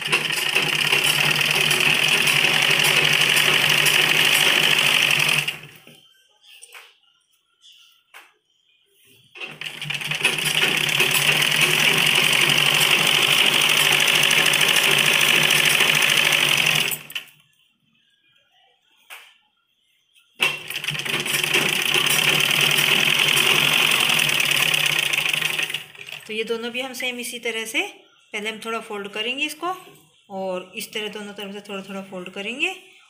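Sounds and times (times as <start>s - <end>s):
sewing machine stitching: 0.0s - 5.9s, 9.4s - 17.3s, 20.4s - 26.3s.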